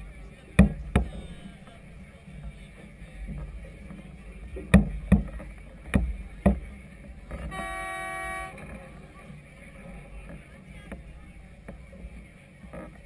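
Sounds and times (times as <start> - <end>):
sharp knocks: 4.7 - 6.7
horn blast: 7.5 - 8.8.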